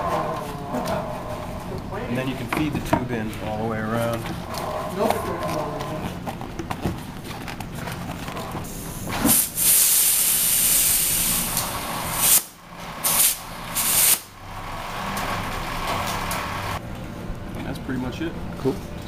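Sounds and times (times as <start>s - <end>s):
compressed air hissing: 8.7s - 14.3s.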